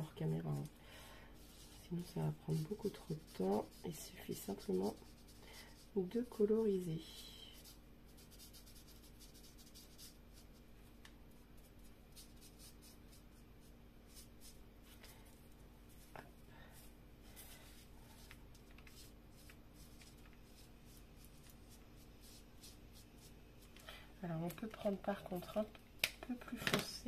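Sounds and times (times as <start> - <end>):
low steady hum: 0.0 - 27.0
marker scratching on paper: 1.4 - 5.8, 7.6 - 10.4.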